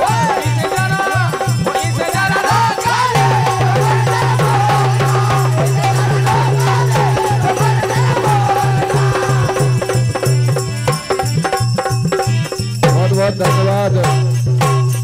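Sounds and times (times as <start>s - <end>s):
low drum beat: 0.0s - 15.0s
rattling percussion: 0.0s - 15.0s
wavering melody: 3.0s - 14.5s.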